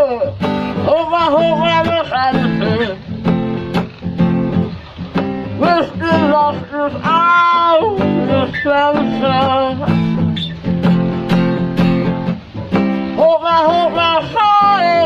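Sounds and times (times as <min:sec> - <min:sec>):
person singing: 0:00.0 - 0:03.1, 0:05.6 - 0:10.3, 0:13.1 - 0:15.0
acoustic guitar strumming: 0:00.0 - 0:15.0.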